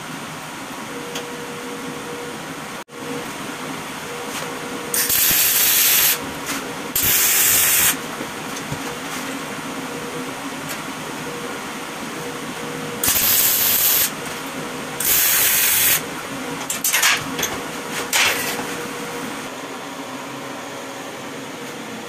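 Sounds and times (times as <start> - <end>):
steady background hum: 0.0 - 22.0
arc welding hiss: 4.9 - 6.2, 7.0 - 8.0, 13.0 - 14.2, 15.0 - 16.0.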